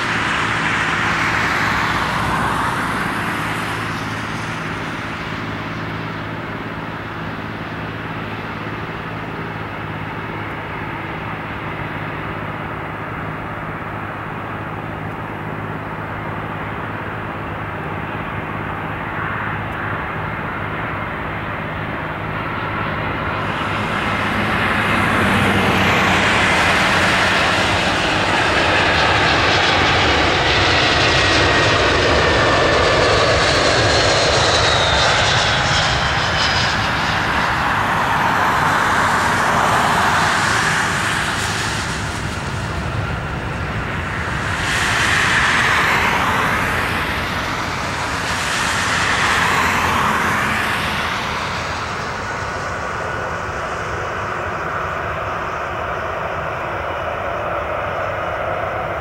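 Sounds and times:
jet engines whining: 0.0s - 59.0s
steady rumble: 19.6s - 59.0s.

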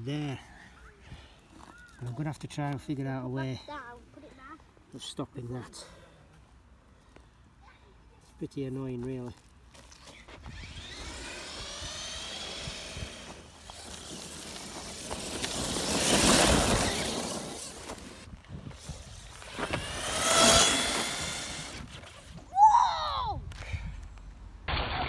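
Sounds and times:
electric motor whining: 10.1s - 18.2s, 19.0s - 22.4s
rushing tyre noise: 10.6s - 22.0s.

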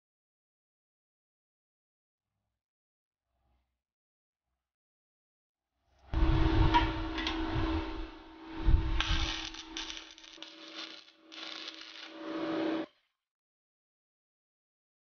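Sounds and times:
steady hum: 6.2s - 12.8s
welder arc crackling: 9.0s - 12.8s.

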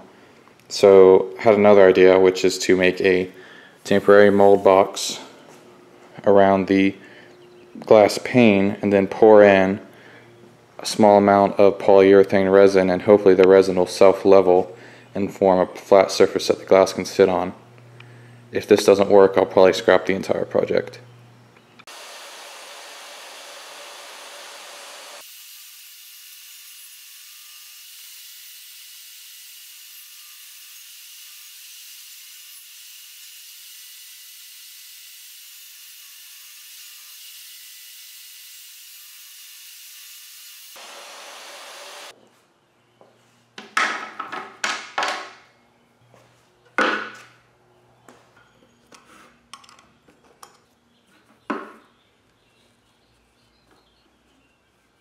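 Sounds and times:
table saw running: 21.9s - 28.8s, 35.7s - 42.1s.

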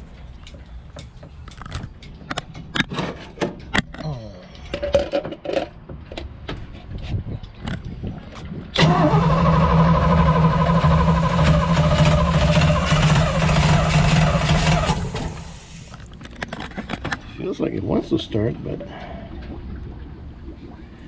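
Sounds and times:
engine starter cranking: 8.8s - 16.0s.

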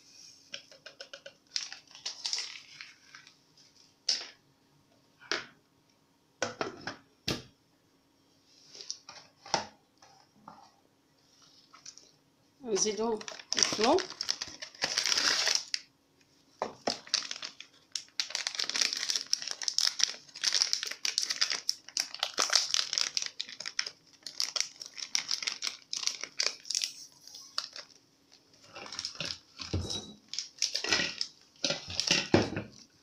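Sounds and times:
paper and foil packet crinkling: 0.8s - 3.4s, 11.6s - 15.9s, 16.8s - 33.0s.

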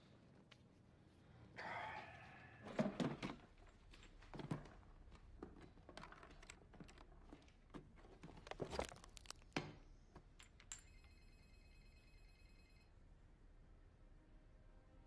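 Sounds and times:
small objects clicking and rustling: 3.5s - 10.9s
high ringing tone: 10.8s - 13.0s.

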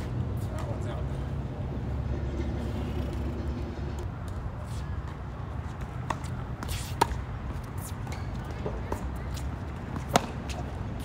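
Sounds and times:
low outdoor rumble: 0.0s - 6.0s
tennis ball struck by racket: 6.0s - 9.0s, 9.8s - 10.7s.

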